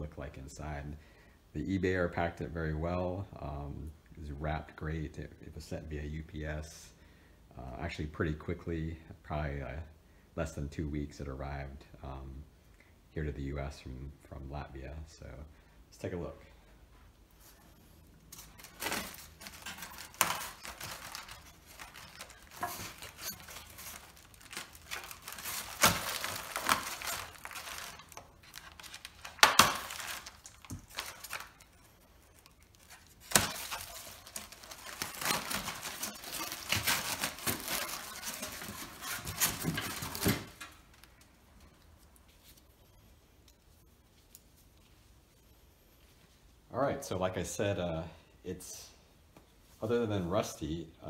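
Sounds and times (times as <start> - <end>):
foam rustling and crinkling: 17.3 - 43.2
packing tape tearing: 18.3 - 41.1
sharp foam cracks: 18.7 - 31.6.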